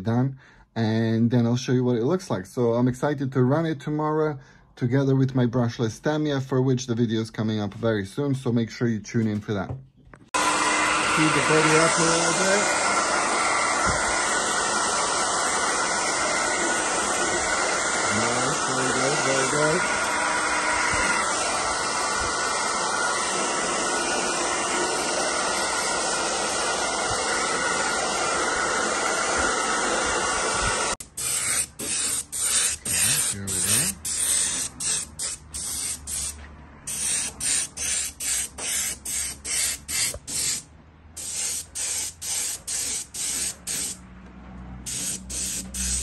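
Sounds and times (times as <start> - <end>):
hair dryer blowing: 10.3 - 40.6, 41.2 - 44.0, 44.8 - 46.0
airbrush spraying: 11.1 - 25.2, 29.3 - 44.0, 44.8 - 46.0.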